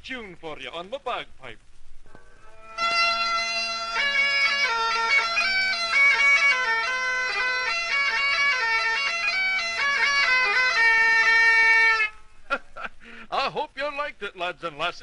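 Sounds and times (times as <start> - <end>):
bagpipe playing: 2.4 - 12.4.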